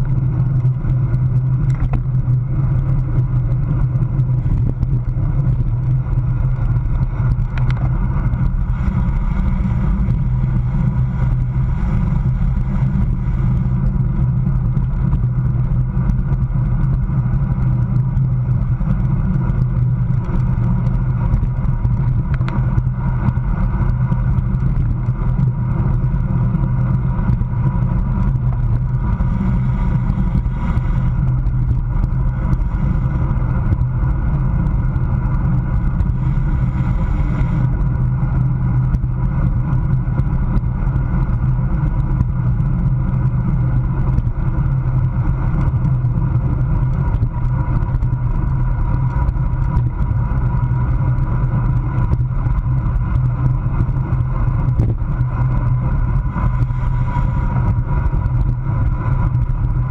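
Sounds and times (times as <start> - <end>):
tyre and road hum: 0.0 - 59.9
wind buffeting microphone: 0.0 - 59.9.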